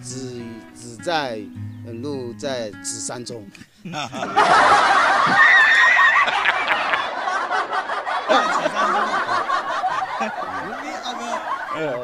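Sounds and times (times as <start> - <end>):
high drawn-out laugh: 3.8 - 12.0
men laughing loudly: 3.8 - 12.0.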